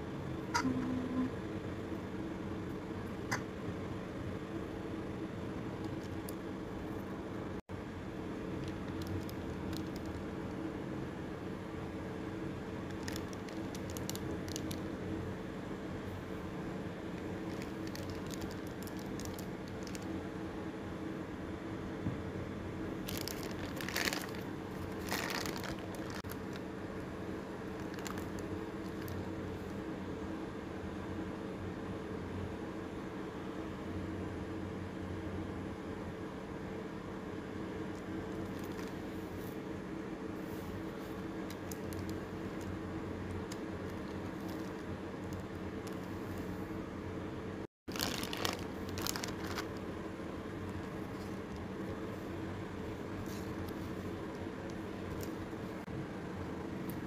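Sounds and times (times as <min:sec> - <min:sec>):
steady low hum: 0:00.0 - 0:57.0
plastic cling wrap crinkling: 0:08.6 - 0:10.6, 0:12.8 - 0:15.0, 0:17.2 - 0:20.2, 0:23.0 - 0:26.8, 0:27.7 - 0:29.3, 0:38.3 - 0:39.2, 0:40.8 - 0:46.6, 0:47.9 - 0:55.8.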